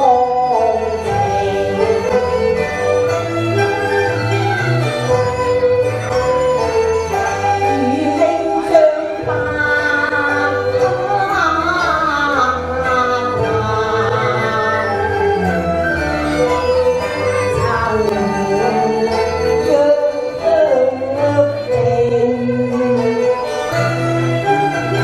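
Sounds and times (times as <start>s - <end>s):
woman singing: 0.0s - 2.8s, 7.4s - 16.0s, 17.3s - 25.0s
instrumental backing with bass: 0.0s - 25.0s.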